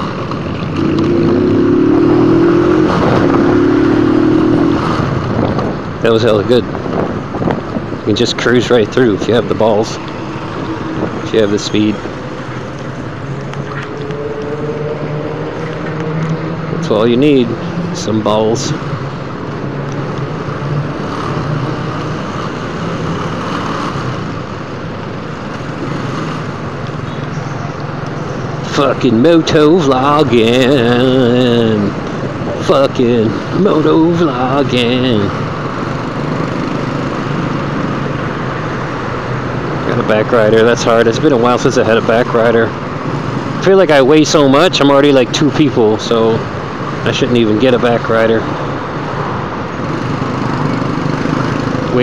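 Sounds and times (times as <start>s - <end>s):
motorcycle engine accelerating: 0.0s - 5.9s, 12.0s - 18.2s
motorcycle engine humming: 0.0s - 52.0s
road and traffic noise: 0.0s - 52.0s.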